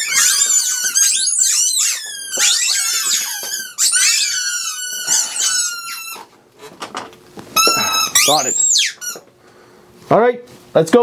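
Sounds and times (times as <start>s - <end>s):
rubber squeaky toys squealing: 0.0s - 6.3s, 7.6s - 9.3s.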